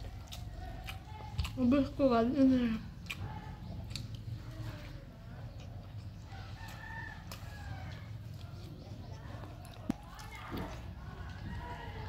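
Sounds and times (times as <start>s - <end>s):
rooster crowing: 6.3s - 8.1s.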